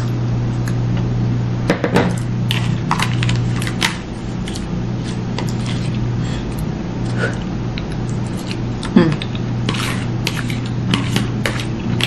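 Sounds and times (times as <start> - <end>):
steady low hum: 0.0 - 12.0
fork scraping against a bowl: 4.5 - 6.6, 9.2 - 12.0.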